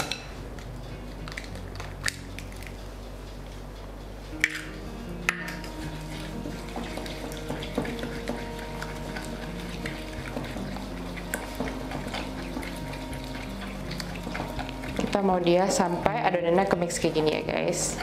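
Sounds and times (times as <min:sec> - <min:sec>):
spatula scraping glass bowl: 0:05.3 - 0:16.8.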